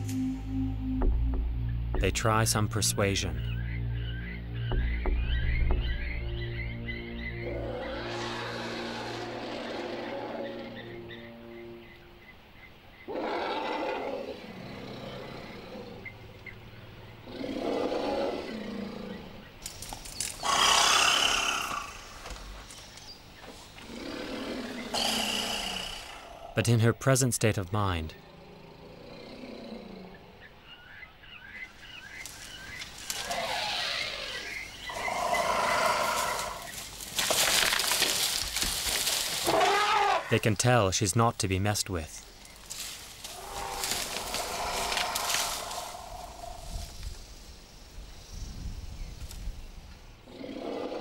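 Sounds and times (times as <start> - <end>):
large animal roaring: 7.4 - 10.8, 17.2 - 19.4, 23.9 - 26.6, 28.2 - 30.4, 33.2 - 36.6, 43.3 - 46.9, 50.3 - 51.0
elephant trumpeting: 7.4 - 11.4, 39.4 - 40.3, 43.3 - 46.8.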